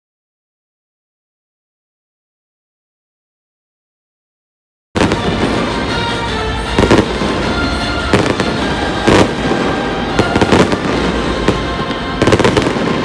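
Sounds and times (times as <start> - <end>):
background music: 5.0 - 13.0
fireworks exploding: 5.0 - 13.0
loud firework bangs: 5.0 - 13.0.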